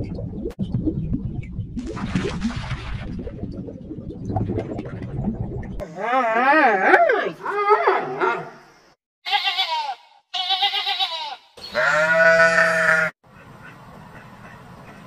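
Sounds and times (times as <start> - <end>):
sheep bleating: 9.2 - 13.2.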